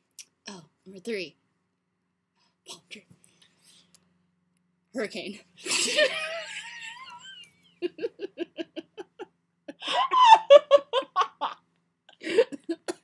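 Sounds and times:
girls laughing: 5.6s - 11.6s.

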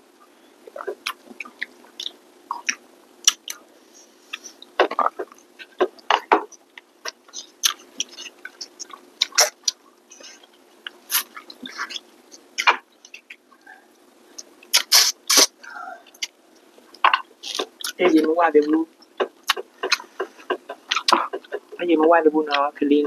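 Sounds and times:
faint steady hum: 0.0s - 23.0s
chewing and mouth smacks: 0.7s - 3.6s, 4.3s - 13.5s, 16.1s - 18.0s, 18.9s - 21.8s.

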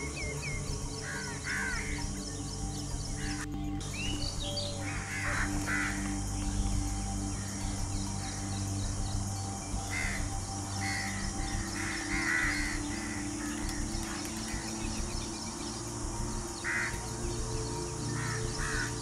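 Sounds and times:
sustained musical drone: 0.0s - 19.0s
crow-like bird caws: 4.9s - 6.2s.

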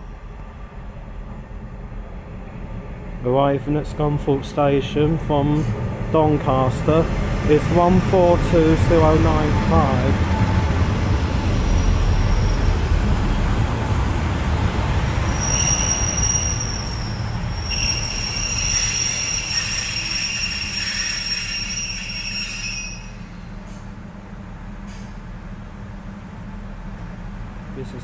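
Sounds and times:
train running gear rumbling: 0.0s - 28.0s
high-pitched brake squeal: 9.4s - 12.9s, 15.3s - 23.8s.

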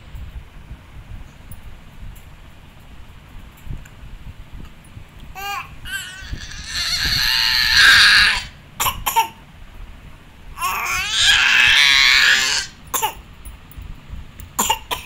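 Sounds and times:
baby screaming: 5.4s - 8.6s, 10.6s - 12.8s
baby yelping: 5.4s - 9.4s, 10.6s - 12.8s.

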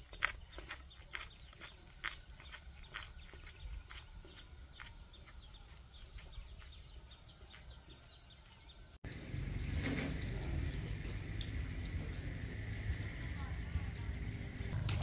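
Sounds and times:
footsteps crunching on dry ground: 0.0s - 8.6s.

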